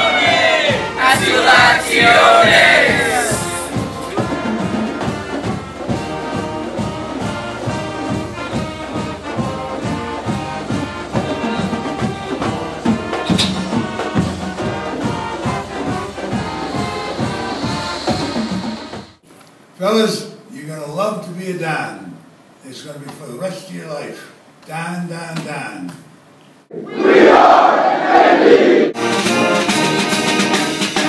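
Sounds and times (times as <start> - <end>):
brass band music: 0.0 - 19.2, 27.0 - 31.0.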